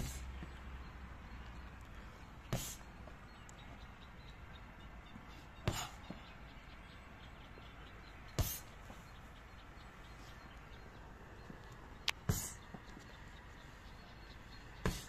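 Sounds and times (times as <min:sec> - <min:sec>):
kicks thudding on a pad: 0:08.4 - 0:08.7, 0:14.8 - 0:15.0.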